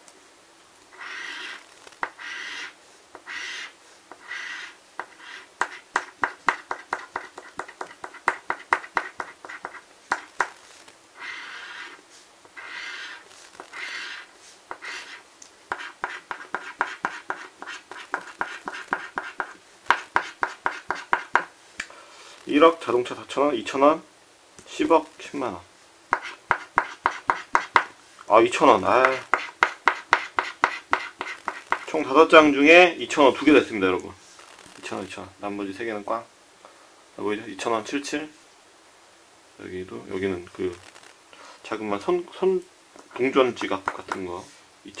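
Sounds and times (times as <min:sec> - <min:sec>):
coin scratching lottery ticket: 0:01.0 - 0:05.8, 0:11.2 - 0:12.0, 0:12.6 - 0:19.5.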